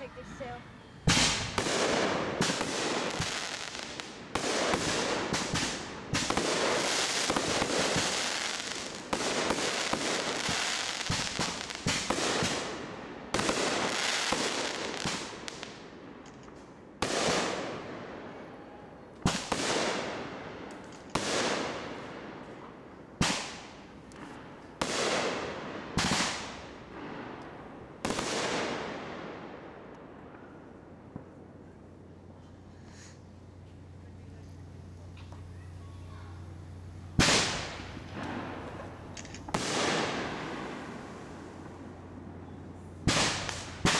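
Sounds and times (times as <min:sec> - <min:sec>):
fireworks bursting and crackling: 0:00.0 - 0:43.9
sharp firework bangs: 0:01.0 - 0:15.9, 0:17.0 - 0:18.0, 0:19.2 - 0:22.6, 0:23.2 - 0:29.4, 0:36.4 - 0:43.9.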